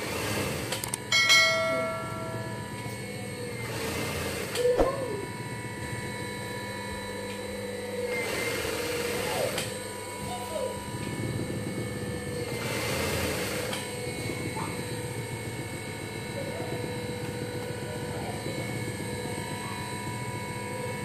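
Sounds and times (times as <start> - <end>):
sewing machine hum: 0.0 - 1.0, 3.3 - 5.3, 8.0 - 9.9, 11.2 - 14.5.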